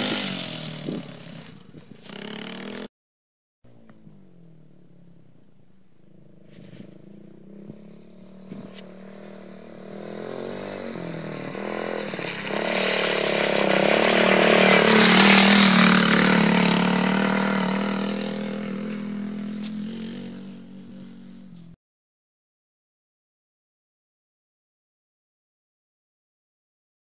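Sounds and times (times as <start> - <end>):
quad bike engine passing: 0.0 - 2.9, 3.7 - 21.8.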